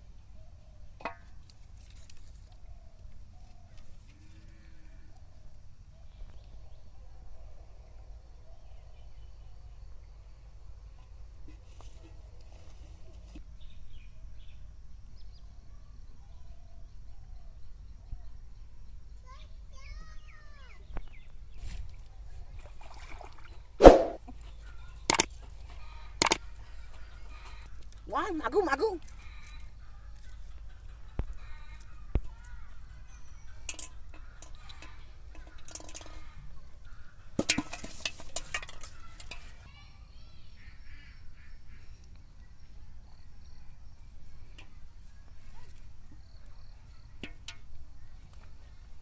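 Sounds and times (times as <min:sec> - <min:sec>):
brief burst of noise: 0:23.8 - 0:24.2
sharp click: 0:25.1 - 0:25.3, 0:26.2 - 0:26.4
fish knocking in metal basin: 0:33.6 - 0:36.3, 0:37.4 - 0:39.4.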